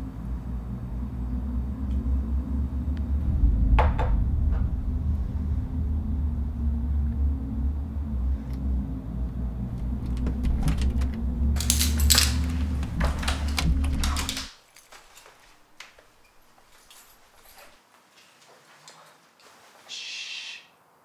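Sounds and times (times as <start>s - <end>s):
low steady hum: 0.0s - 14.5s
keys rattling in door lock: 9.8s - 17.8s.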